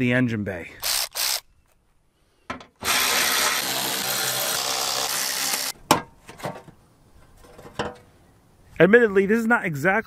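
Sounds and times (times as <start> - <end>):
power tool running: 2.8 - 5.7.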